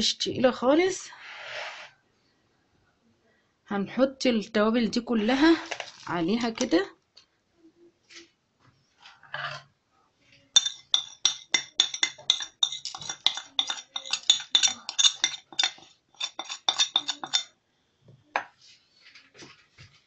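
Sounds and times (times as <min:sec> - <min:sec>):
metal spoon clinking on a plate: 0:10.6 - 0:17.5.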